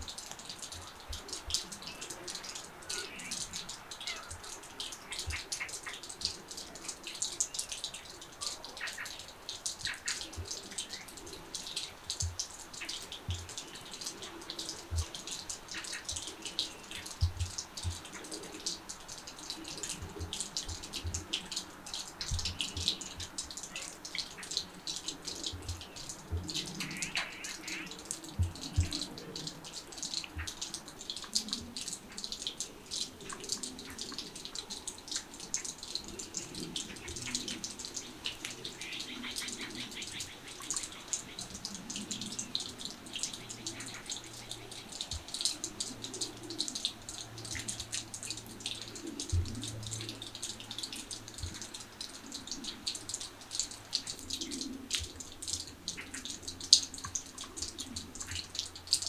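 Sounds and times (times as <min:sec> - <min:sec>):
patter of small ticks and drips: 0:00.0 - 0:59.0.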